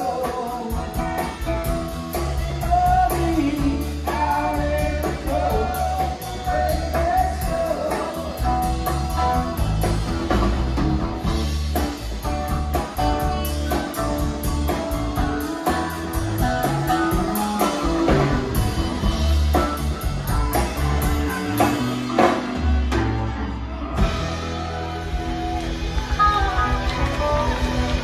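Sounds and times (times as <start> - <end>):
blues-rock band playing: 0.0 - 28.0.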